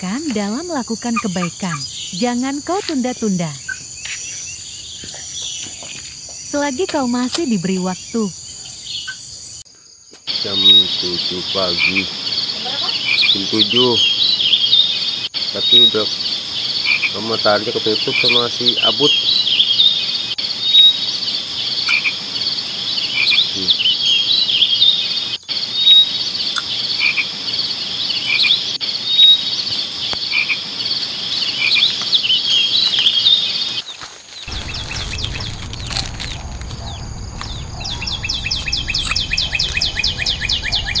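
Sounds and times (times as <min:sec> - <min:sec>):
birds chirping: 0:00.0 - 0:41.0
insects droning: 0:00.0 - 0:41.0
fast pulsing call: 0:10.4 - 0:16.2.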